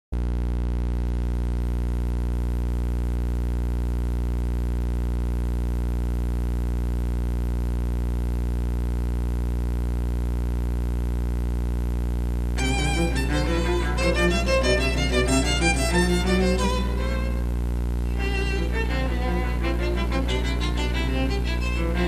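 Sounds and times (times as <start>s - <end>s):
electrical mains hum: 0.2s - 22.0s.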